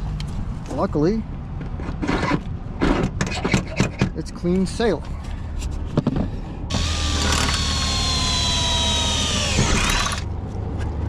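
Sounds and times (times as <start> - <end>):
cordless drill boring through metal: 6.7 - 10.3.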